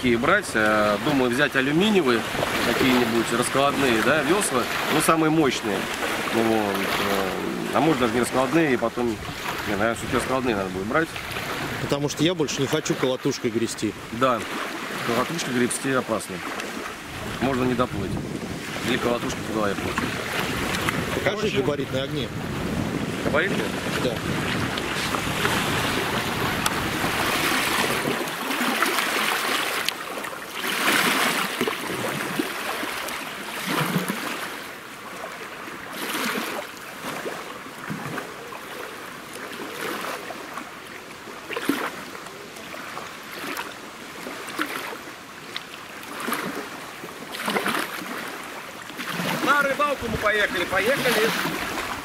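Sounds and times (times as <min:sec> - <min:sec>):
wind buffeting microphone: 0:00.0 - 0:12.6, 0:16.7 - 0:28.4, 0:49.7 - 0:52.0
water lapping against boat hull: 0:00.0 - 0:52.0.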